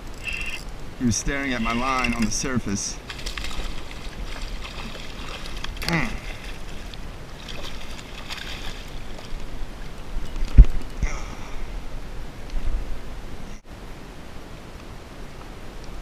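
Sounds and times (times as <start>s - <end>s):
fish splashing in water: 3.0s - 9.9s.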